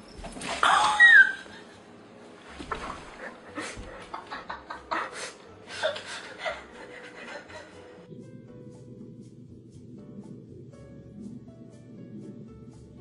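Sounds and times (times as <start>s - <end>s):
cat yowling: 0.6s - 1.5s.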